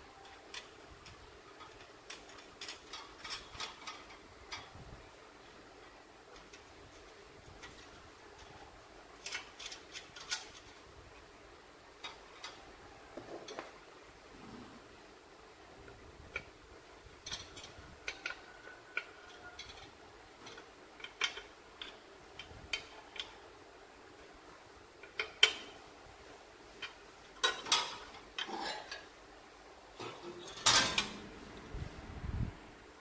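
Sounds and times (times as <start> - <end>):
spanner clinking on metal nuts: 1.5 - 4.7.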